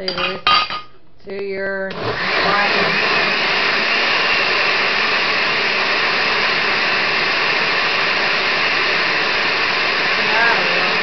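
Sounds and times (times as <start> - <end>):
blender running: 1.9 - 11.0.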